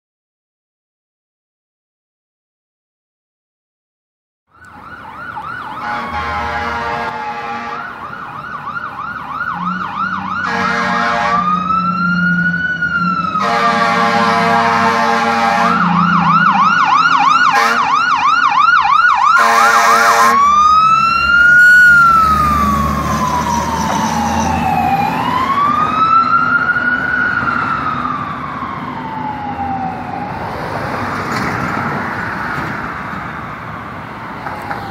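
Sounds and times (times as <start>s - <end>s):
fire truck engine rumbling: 4.5s - 34.9s
fire truck siren yelp and wail: 4.5s - 34.9s
air horn blasts: 5.8s - 8.0s, 10.4s - 11.6s, 13.4s - 16.0s, 17.4s - 18.0s, 19.4s - 20.5s.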